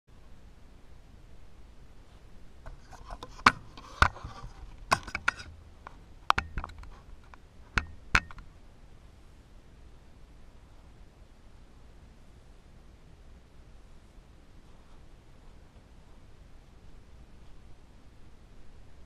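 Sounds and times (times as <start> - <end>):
light scraping on glass: 2.6 - 8.4
camera handling clicks and knocks: 2.7 - 5.5, 6.3 - 6.9, 7.8 - 8.5.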